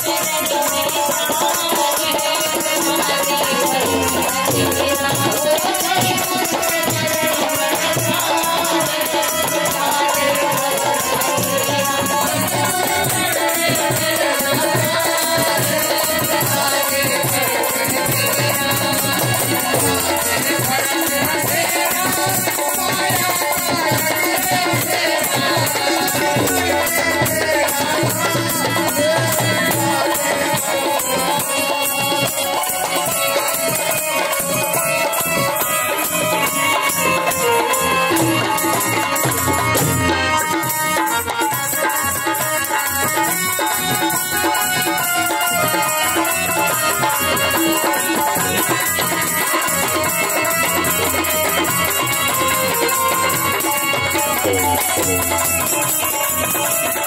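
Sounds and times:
hand drum beat: 0.0s - 57.0s
harmonium melody: 0.0s - 57.0s
rattling percussion: 0.0s - 57.0s.

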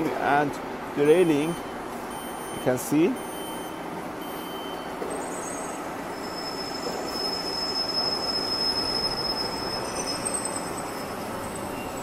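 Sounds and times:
high-pitched cutter squeal: 5.3s - 11.1s.

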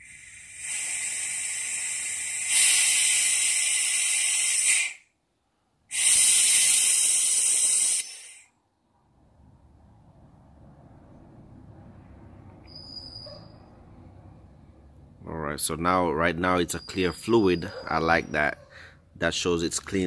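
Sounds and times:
compressed air hissing: 0.0s - 5.1s, 5.9s - 8.5s.

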